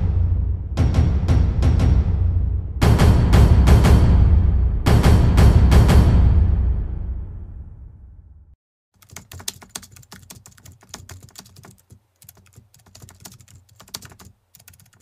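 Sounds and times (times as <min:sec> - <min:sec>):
music: 0:00.0 - 0:08.5.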